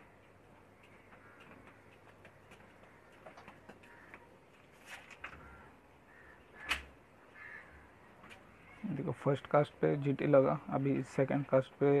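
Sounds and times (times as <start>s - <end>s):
faint clicks and taps: 0.2s - 4.6s.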